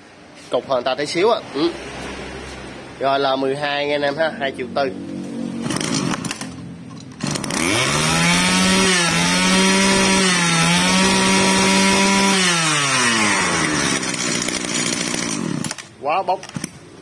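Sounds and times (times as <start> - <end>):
brush cutter engine revving: 5.6 - 16.0.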